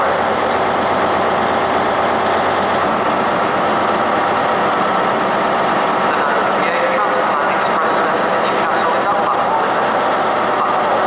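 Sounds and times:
train diesel engine idling: 0.0s - 11.0s.

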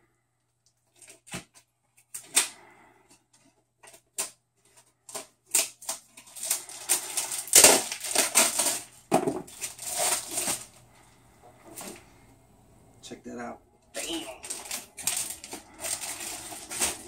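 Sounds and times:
packaging clicks and scrapes: 0.8s - 10.9s, 14.0s - 17.0s
packaging crinkling: 3.8s - 12.0s, 14.0s - 17.0s.

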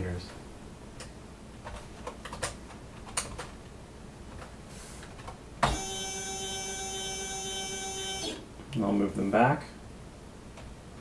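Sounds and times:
stepper motors whining: 5.6s - 8.4s.

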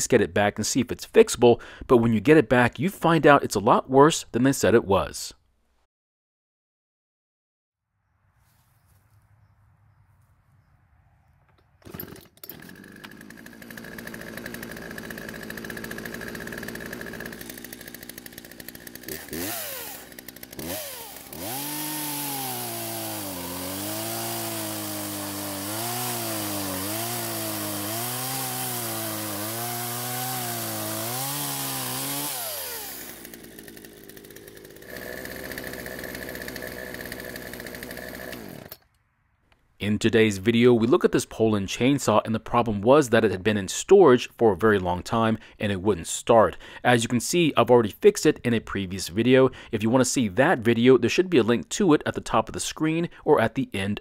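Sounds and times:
chainsaw cutting through log: 11.8s - 38.9s
chainsaw idling and revving: 11.8s - 38.9s.

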